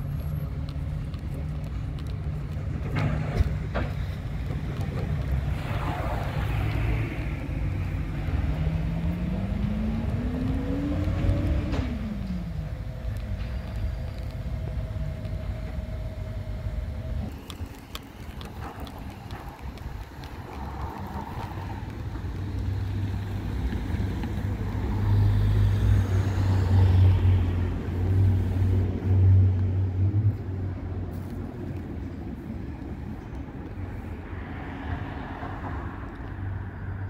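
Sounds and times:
garbage truck diesel engine: 0.0 - 33.1
traffic: 0.0 - 37.0
car passing close by: 5.4 - 12.4.

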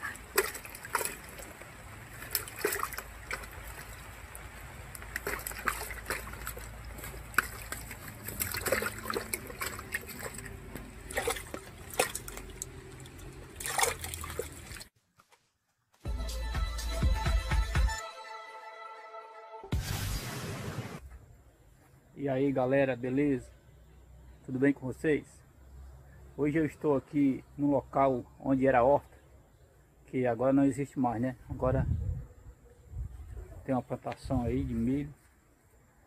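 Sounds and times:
water splashing in a bucket: 0.0 - 14.9
electronic music: 16.1 - 21.0.

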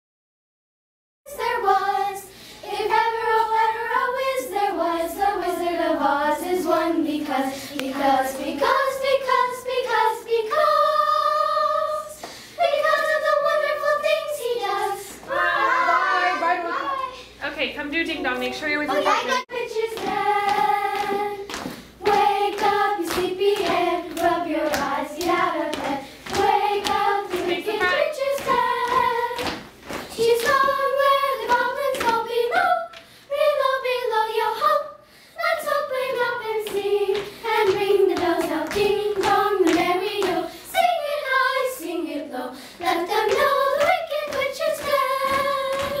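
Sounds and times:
children singing: 1.3 - 17.3, 19.0 - 46.0
hand claps: 19.9 - 30.8, 36.7 - 40.5, 43.2 - 46.0.

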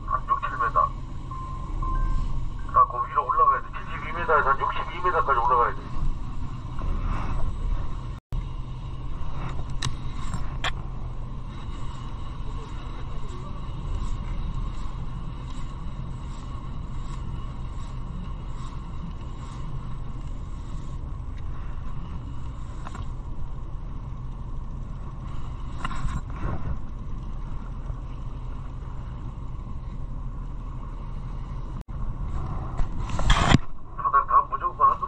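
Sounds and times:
boat engine rumble: 0.0 - 35.0.

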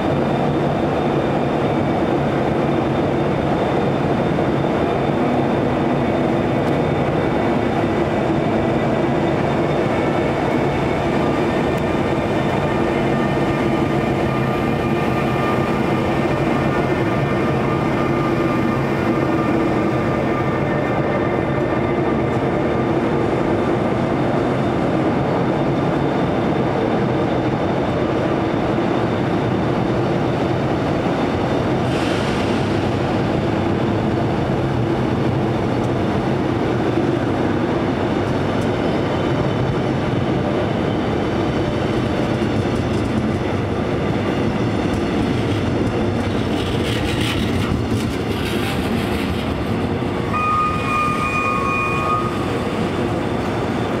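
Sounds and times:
train wheels rumbling on rails: 0.0 - 54.0
high steady tone: 50.3 - 52.6.

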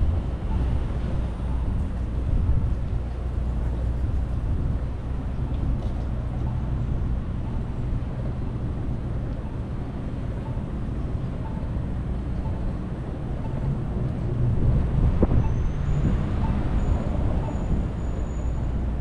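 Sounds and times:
wind on microphone: 0.0 - 7.4, 12.5 - 19.0
street and traffic noise: 0.0 - 19.0.

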